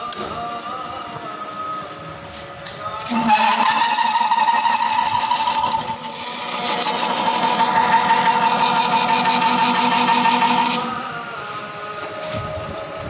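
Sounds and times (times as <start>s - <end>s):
milling machine humming: 1.2s - 13.0s.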